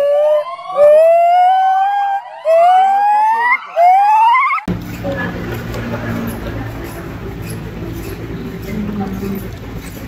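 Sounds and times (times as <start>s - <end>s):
gibbon calling with rising whoops: 0.0s - 4.6s.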